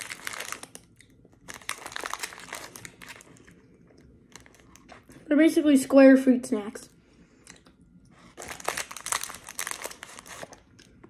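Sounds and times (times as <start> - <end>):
plastic pouch crinkling: 0.0 - 3.5, 4.3 - 4.8, 8.4 - 10.8.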